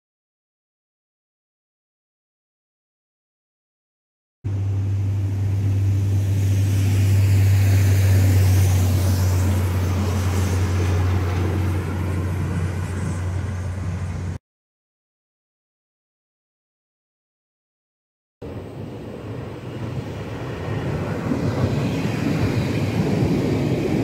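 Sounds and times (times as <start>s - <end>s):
rail vehicle diesel engine passing: 4.5s - 14.4s, 18.4s - 24.0s.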